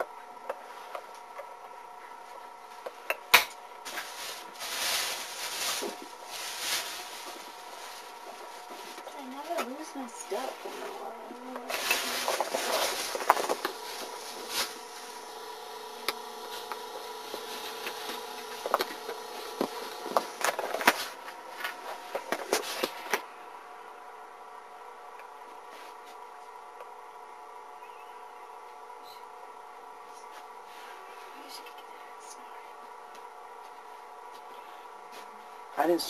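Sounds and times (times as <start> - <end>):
steady hum: 0.0 - 36.0
rustling: 3.8 - 9.6, 10.4 - 15.4.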